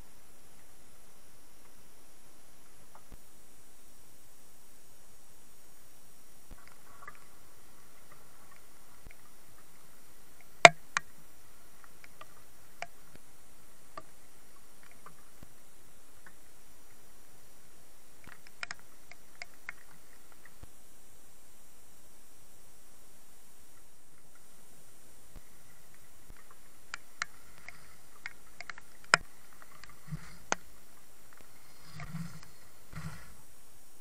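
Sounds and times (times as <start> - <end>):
sharp ticks: 26.4 - 30.6.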